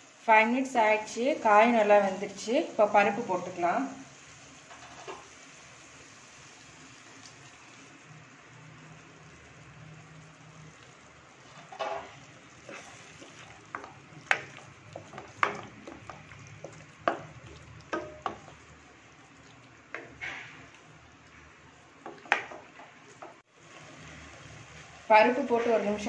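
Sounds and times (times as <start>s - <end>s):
faint sizzle: 0.0s - 26.0s
wooden spatula scraping pan: 11.4s - 18.8s, 19.4s - 20.9s.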